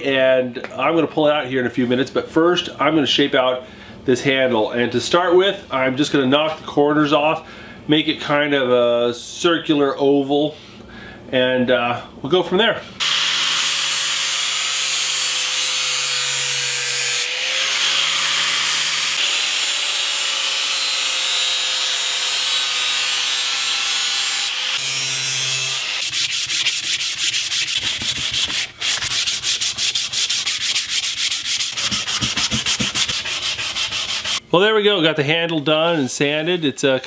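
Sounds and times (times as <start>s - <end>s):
angle grinder grinding wood: 13.0s - 34.4s
hand sanding wood: 24.4s - 34.4s.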